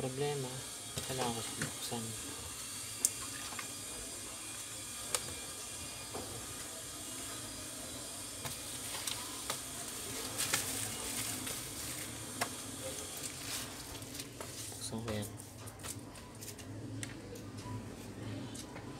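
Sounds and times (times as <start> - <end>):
bubble wrap crinkling: 8.5 - 16.6.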